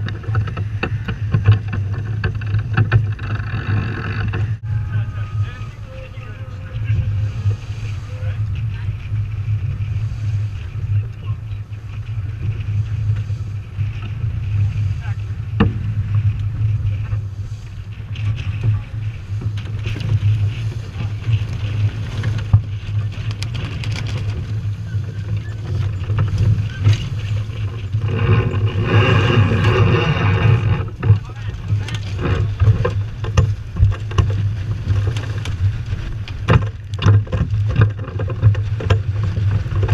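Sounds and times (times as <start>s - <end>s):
wind buffeting microphone: 0.0s - 39.9s
hiss of wind and water: 4.6s - 36.5s.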